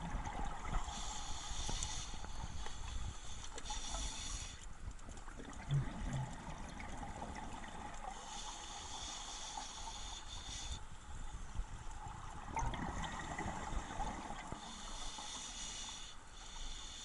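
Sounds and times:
regulator bubbling underwater: 0.0 - 1.1, 5.3 - 8.1, 11.9 - 14.7.

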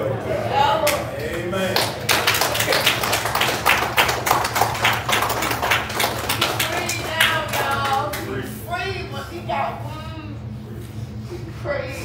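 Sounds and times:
congregation applauding: 0.9 - 8.3.

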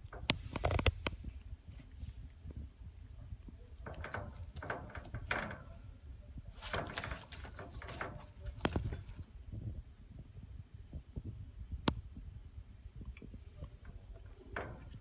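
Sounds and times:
puppy scratching at wire crate: 6.5 - 9.2.

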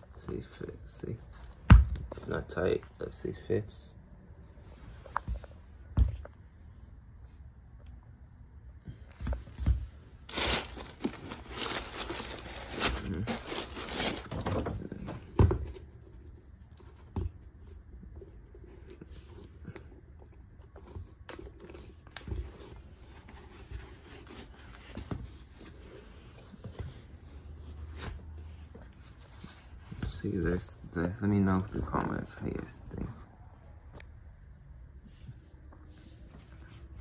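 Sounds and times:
tissue paper rustling: 10.2 - 14.6.

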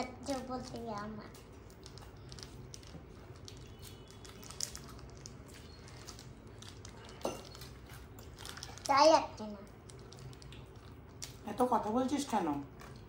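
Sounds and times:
chewing: 1.7 - 8.9, 9.6 - 11.4.

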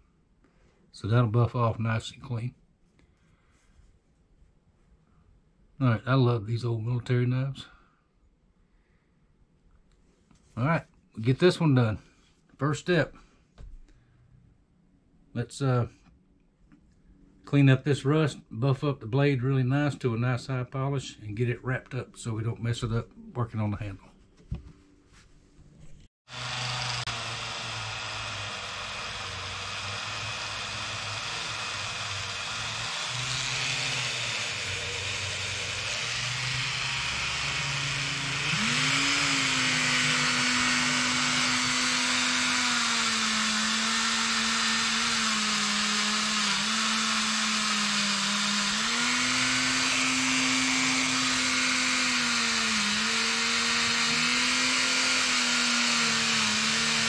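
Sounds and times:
rotary tool motor whine: 26.3 - 57.0.

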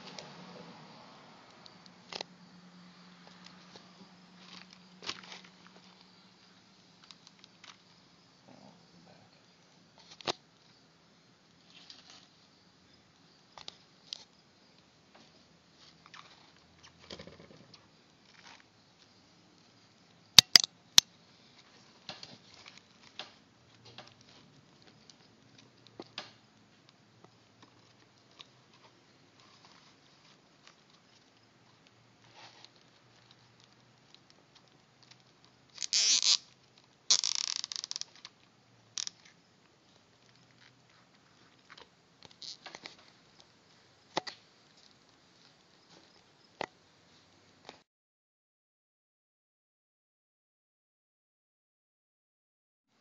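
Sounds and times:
small plastic clicks: 20.4 - 20.7, 34.1 - 38.4
zip ties ratcheting: 20.4 - 20.7, 35.8 - 36.5, 37.1 - 38.1.

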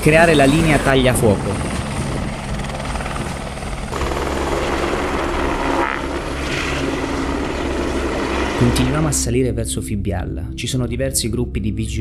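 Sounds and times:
helicopter rotor noise: 0.0 - 9.2.

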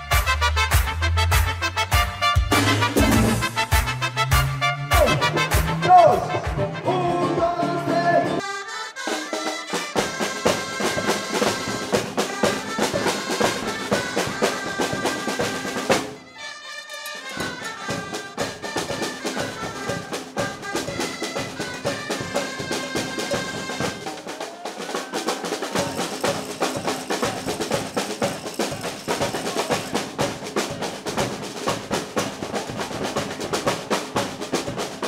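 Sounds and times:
steady drum beat: 0.0 - 6.8, 9.4 - 16.2, 17.2 - 35.0
reedy wind or brass instruments: 0.0 - 30.6.

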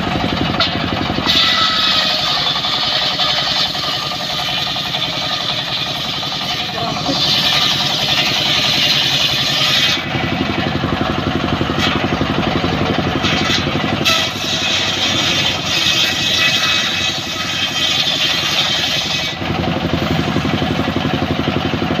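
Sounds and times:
sawmill engine running: 0.0 - 22.0
saw blade cutting hiss: 1.2 - 10.0, 13.3 - 19.4.

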